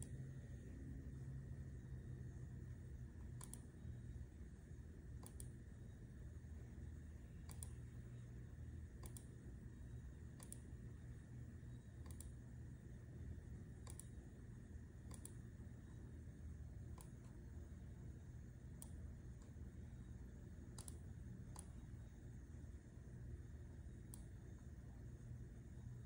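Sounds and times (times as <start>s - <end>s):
faint low hum: 0.0s - 26.0s
computer mouse clicks: 3.2s - 3.8s, 5.1s - 5.6s, 7.4s - 7.8s, 8.9s - 9.4s, 10.3s - 10.8s, 11.8s - 12.4s, 13.8s - 14.3s, 15.0s - 16.0s, 16.8s - 17.4s, 18.7s - 19.7s, 20.7s - 22.0s, 24.0s - 24.7s.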